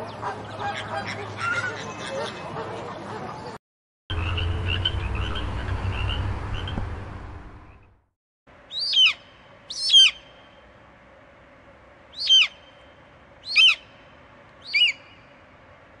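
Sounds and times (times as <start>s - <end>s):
eagle calling: 8.7s - 10.3s, 12.2s - 12.7s, 13.4s - 13.9s, 14.6s - 15.2s.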